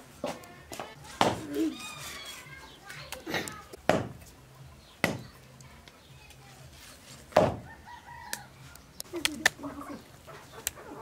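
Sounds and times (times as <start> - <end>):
meat chopped on wooden block: 5.0 - 5.3.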